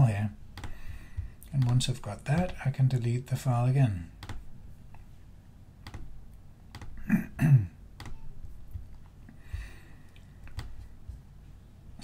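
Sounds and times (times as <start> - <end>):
computer keystrokes: 0.5 - 2.6, 4.2 - 4.6, 5.8 - 7.1, 8.0 - 9.6, 10.5 - 10.9.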